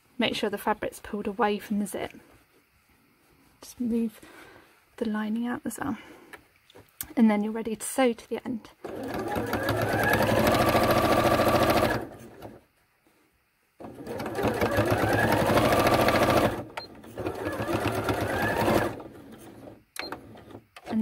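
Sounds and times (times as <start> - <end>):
electric sewing machine stitching: 8.8 - 12.6, 13.8 - 21.0.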